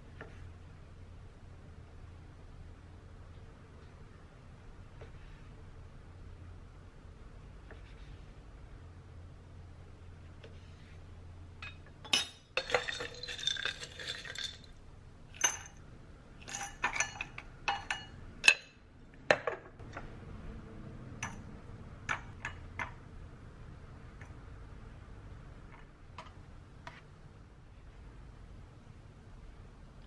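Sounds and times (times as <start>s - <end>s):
scraping and clattering in a bowl: 11.6s - 14.8s, 16.4s - 18.7s
utensils clinking on dishes: 11.6s - 14.8s, 15.4s - 15.8s, 16.4s - 18.8s.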